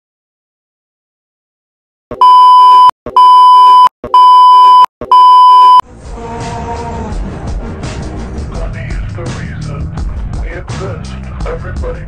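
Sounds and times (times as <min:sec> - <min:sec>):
steady single-pitched beep: 0:02.1 - 0:05.8
music: 0:05.8 - 0:12.0.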